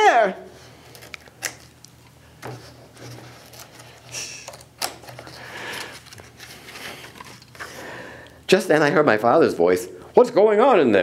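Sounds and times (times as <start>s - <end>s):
paper page rustling: 2.4s - 7.7s.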